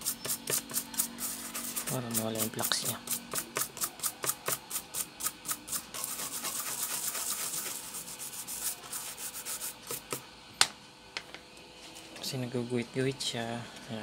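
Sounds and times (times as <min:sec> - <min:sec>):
brush scrubbing circuit board: 0:00.0 - 0:10.2.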